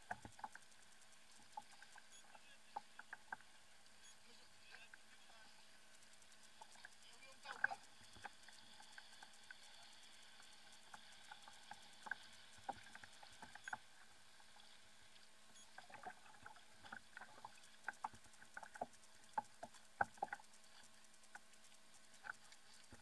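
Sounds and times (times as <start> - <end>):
faint steady hum: 0.0 - 23.0
light clicks and taps of tackle: 15.1 - 23.0.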